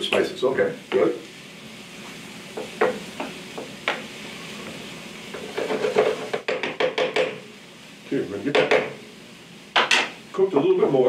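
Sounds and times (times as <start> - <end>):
mushrooms sizzling in a skillet: 0.0 - 11.0
wooden spoon knocking on pan: 2.5 - 4.1, 5.3 - 7.4, 8.5 - 9.0, 9.7 - 10.2.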